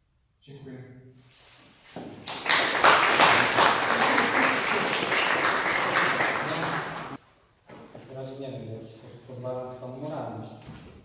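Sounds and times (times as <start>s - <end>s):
audience applauding: 2.2s - 7.2s.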